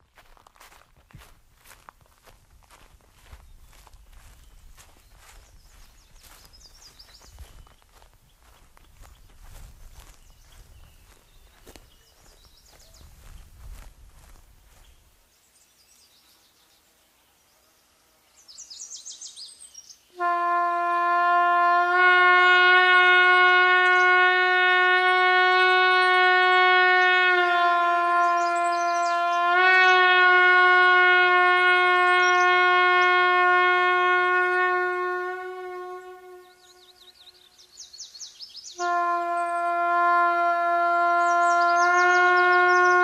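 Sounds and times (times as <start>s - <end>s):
bird chirps: 3.2s - 13.6s, 18.3s - 20.2s, 28.2s - 29.5s, 36.4s - 39.8s, 41.1s - 43.0s
horn sounding long note: 20.2s - 37.5s, 38.8s - 43.0s.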